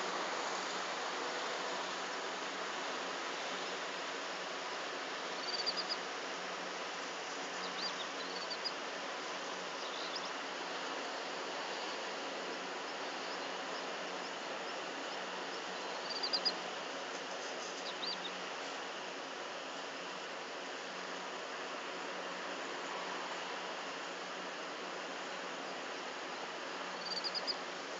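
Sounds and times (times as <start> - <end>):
steady hiss: 0.0 - 27.9
small birds chirping: 5.3 - 6.1, 7.3 - 10.5, 11.6 - 16.7, 17.3 - 18.4, 26.8 - 27.7.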